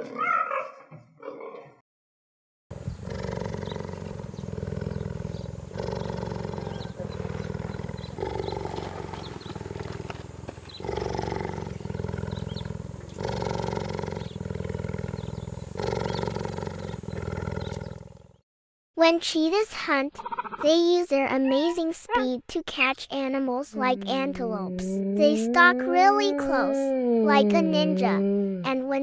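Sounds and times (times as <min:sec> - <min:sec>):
big cat low rumbling: 0:02.7 - 0:18.4.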